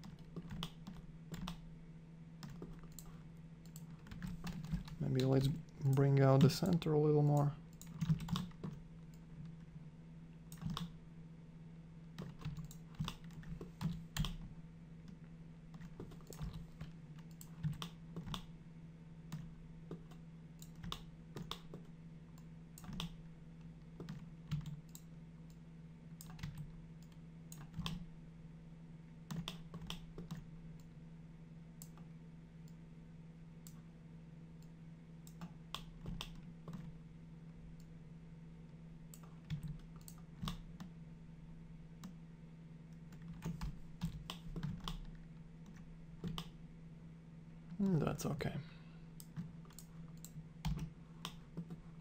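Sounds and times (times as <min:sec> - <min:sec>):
keyboard and mouse clicks: 0:00.0 - 0:01.6, 0:02.4 - 0:09.2, 0:10.5 - 0:11.0, 0:12.2 - 0:15.2, 0:15.8 - 0:18.5, 0:19.3 - 0:23.2, 0:23.9 - 0:25.6, 0:26.2 - 0:28.1, 0:29.3 - 0:30.9, 0:34.6 - 0:37.0, 0:39.1 - 0:40.9, 0:43.0 - 0:46.6, 0:49.2 - 0:51.9
steady low hum: 0:00.0 - 0:52.0.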